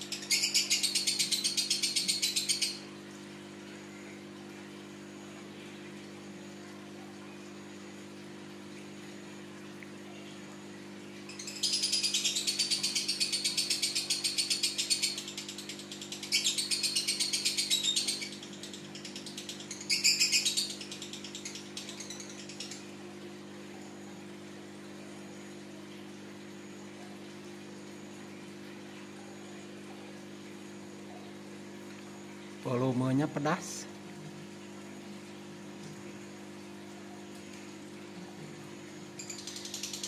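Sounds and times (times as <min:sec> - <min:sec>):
lovebird chattering trills: 0:00.0 - 0:02.8, 0:11.3 - 0:22.9, 0:39.2 - 0:40.0.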